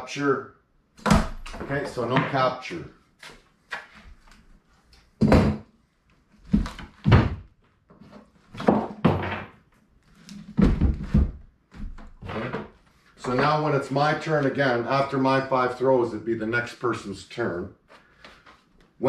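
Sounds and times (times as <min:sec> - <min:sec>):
wooden logs thunking on bench: 0:05.2 - 0:05.6, 0:08.6 - 0:09.6, 0:10.4 - 0:12.7.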